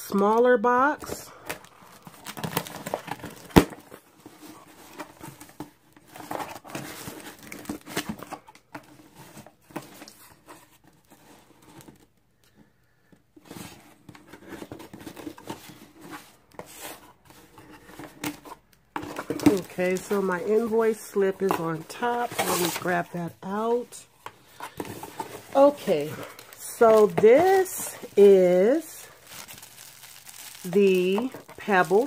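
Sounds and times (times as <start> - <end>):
cardboard flaps rustling: 13.4 - 32.0
tape tearing: 25.1 - 32.0.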